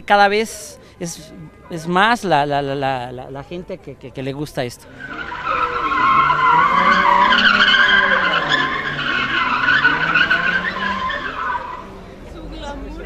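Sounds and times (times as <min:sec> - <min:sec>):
tyres squealing: 0:04.8 - 0:12.2
car engine revving: 0:04.9 - 0:12.7.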